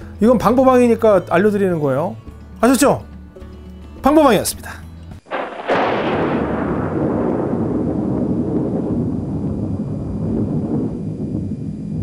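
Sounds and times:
explosion-like boom hit: 5.3 - 12.0
long low rumble: 5.8 - 12.0.

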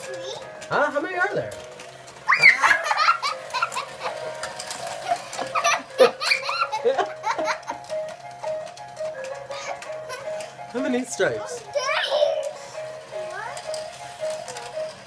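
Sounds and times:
toddler giggling: 2.3 - 4.2, 5.1 - 7.8, 9.5 - 10.5.

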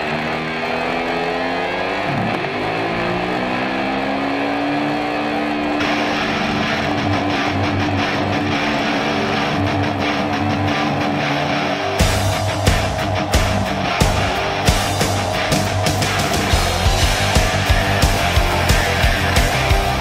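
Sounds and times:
small two-stroke engine revving: 0.0 - 9.7, 12.0 - 20.0
rock music with drums: 5.8 - 20.0.

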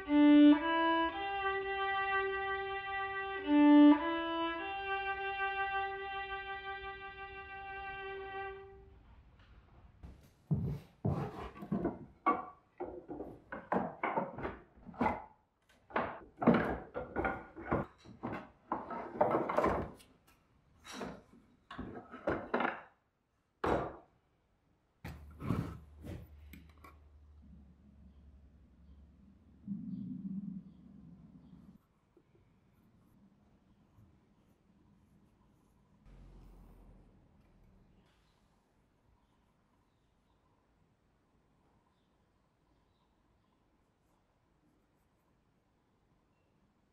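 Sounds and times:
held violin note: 0.0 - 8.8
wood pieces knocking and clattering: 11.7 - 20.0, 21.0 - 22.9.

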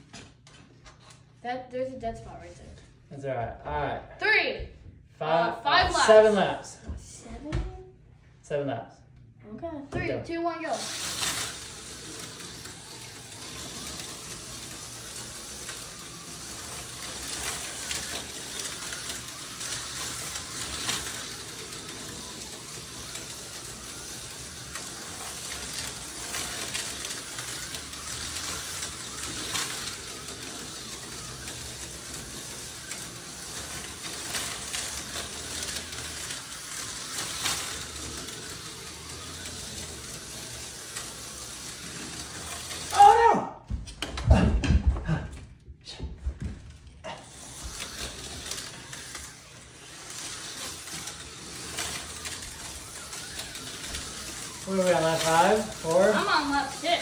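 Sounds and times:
slot cars whirring: 5.7 - 6.7, 10.3 - 43.3, 46.8 - 57.0.

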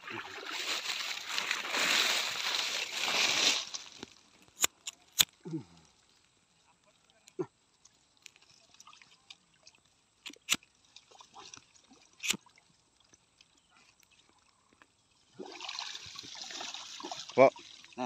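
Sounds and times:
small water splashes: 0.0 - 4.1, 7.7 - 18.0.

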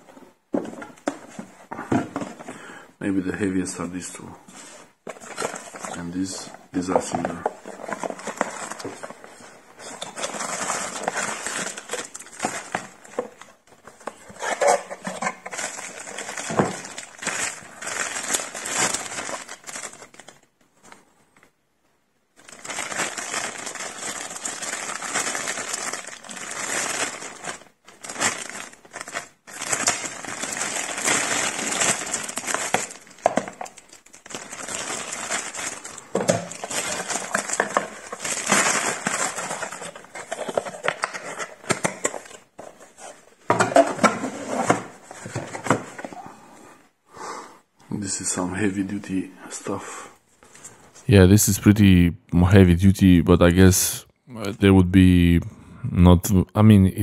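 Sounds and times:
plastic packaging crinkling: 6.8 - 20.5, 22.4 - 42.5.

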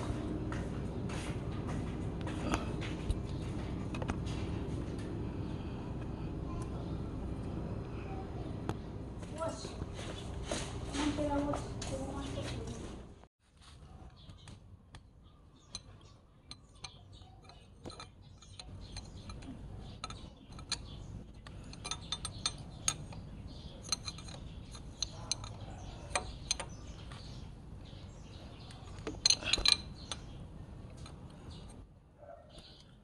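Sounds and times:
tool clinking on metal parts: 15.6 - 27.3, 28.9 - 31.8
metal clatter: 15.7 - 27.0.

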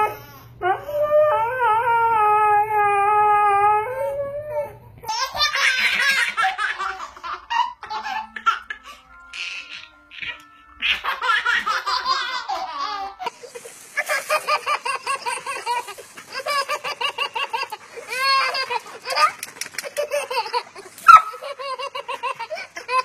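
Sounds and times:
baby laughing and giggling: 5.1 - 23.0
toddler laughing in bursts: 5.1 - 23.0.

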